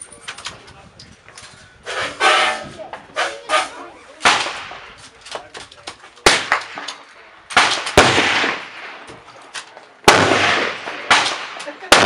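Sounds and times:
rifle shots with echo: 0:04.2 - 0:05.0, 0:06.2 - 0:09.3, 0:10.0 - 0:12.0.

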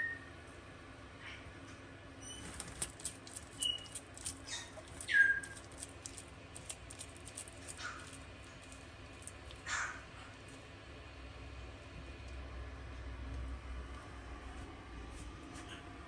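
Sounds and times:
lizard chewing crunchy food: 0:02.4 - 0:12.4.

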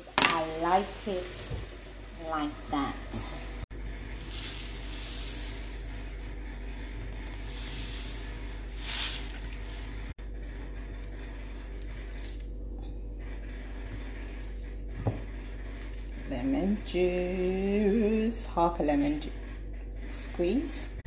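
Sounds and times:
steady low hum: 0:00.0 - 0:21.0
seeds pouring into plastic cup: 0:04.2 - 0:06.3, 0:07.2 - 0:09.8.

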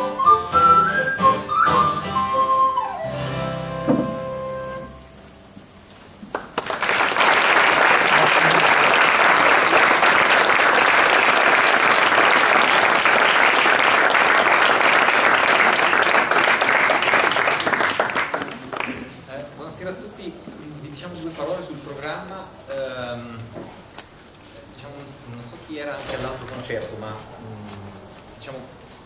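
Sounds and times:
music: 0:00.0 - 0:05.4
audience applauding: 0:06.3 - 0:19.2.

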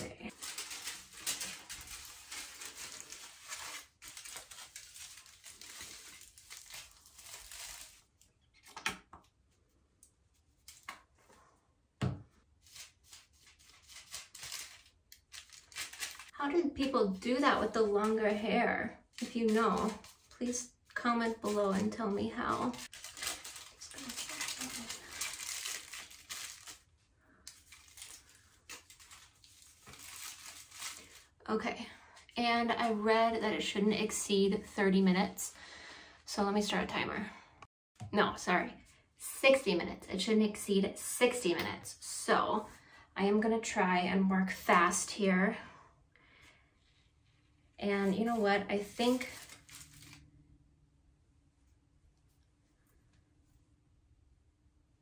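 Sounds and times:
foil crinkling and rustling: 0:00.3 - 0:08.7, 0:12.7 - 0:16.9, 0:19.2 - 0:20.5, 0:21.2 - 0:26.9, 0:27.5 - 0:31.4, 0:48.1 - 0:50.2.

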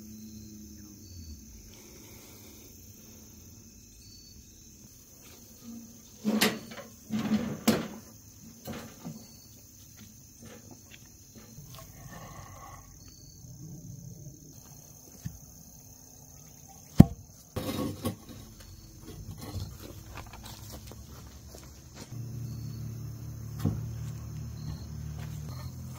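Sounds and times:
insects calling: 0:00.0 - 0:25.9.

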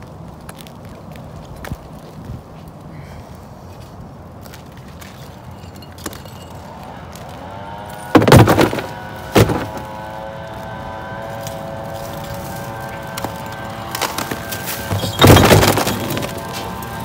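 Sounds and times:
bricks knocking and clattering: 0:08.2 - 0:09.9, 0:14.0 - 0:16.7.

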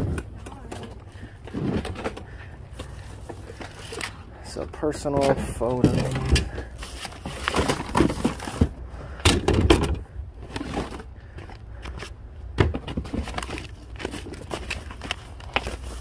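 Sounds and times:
paper and cardboard rustling: 0:05.1 - 0:08.8, 0:10.4 - 0:11.1, 0:12.7 - 0:16.0.

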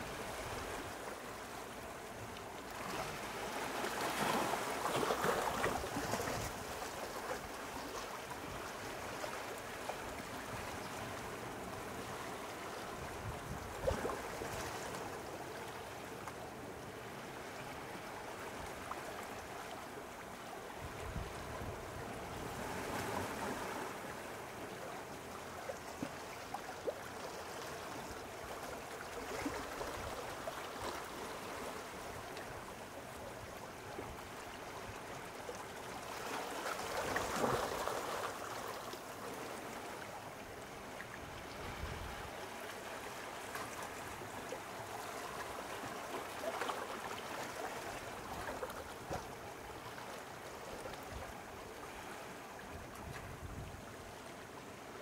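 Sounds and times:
small waves lapping at shore: 0:00.0 - 0:55.0.

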